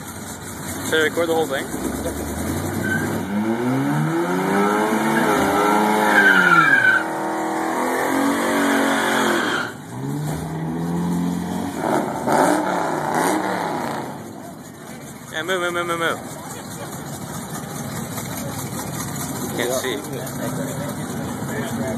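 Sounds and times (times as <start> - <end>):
tyres squealing: 1.6 - 3.5, 4.8 - 7.4, 8.4 - 10.6
pickup engine revving hard: 1.8 - 14.3.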